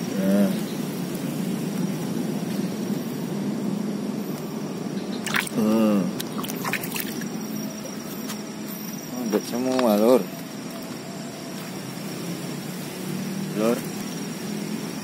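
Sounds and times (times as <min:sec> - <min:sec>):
hand splashing into water: 0:05.2 - 0:07.3
water dripping: 0:05.2 - 0:08.0.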